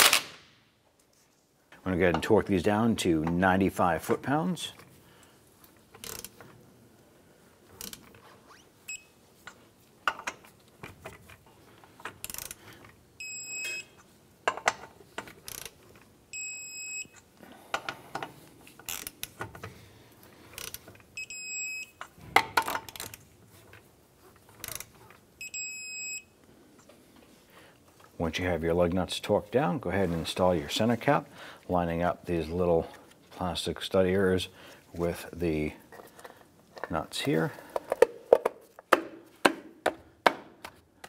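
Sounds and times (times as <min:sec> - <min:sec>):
torque wrench clacking and ratcheting: 0:06.0 - 0:06.4, 0:12.2 - 0:12.6, 0:15.4 - 0:15.8.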